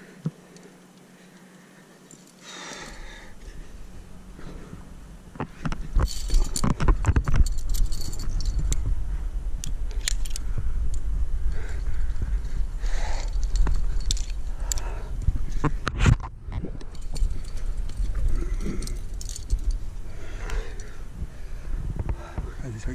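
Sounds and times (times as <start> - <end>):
carabiners jangling and clinking: 2.0 - 3.1, 5.6 - 8.9, 9.6 - 15.7, 16.9 - 21.0
low rumble: 3.3 - 22.9.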